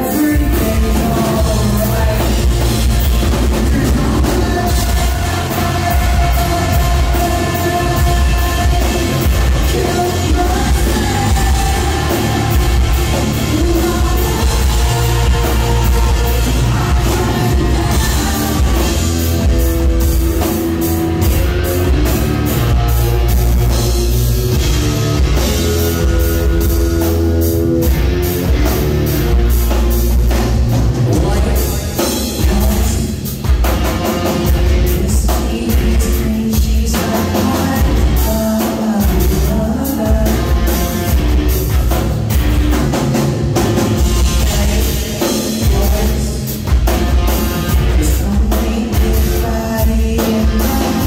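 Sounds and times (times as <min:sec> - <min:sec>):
man singing: 0:00.0 - 0:20.0, 0:21.1 - 0:23.7, 0:30.9 - 0:41.5, 0:44.0 - 0:51.0
rock band playing live: 0:00.0 - 0:51.0.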